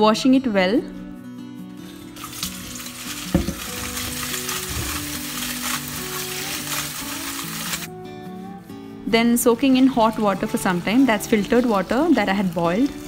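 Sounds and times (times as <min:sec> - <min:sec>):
hand rubbing chillies: 0:01.9 - 0:07.9
tap water running into bowl: 0:02.1 - 0:05.2.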